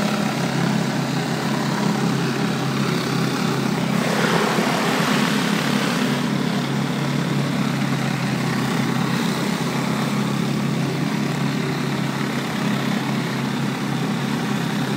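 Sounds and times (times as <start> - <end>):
pressure washer drone: 0.0 - 14.9
water spray hissing on bricks: 3.8 - 6.7.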